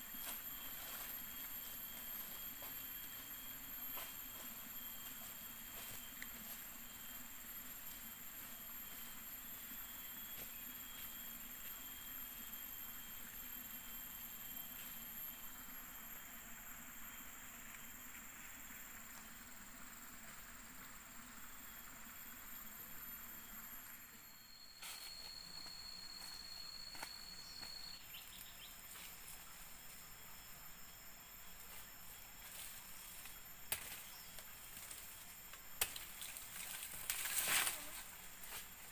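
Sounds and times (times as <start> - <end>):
insects droning: 0.0 - 38.9
faint ticks or rustles: 31.6 - 38.9.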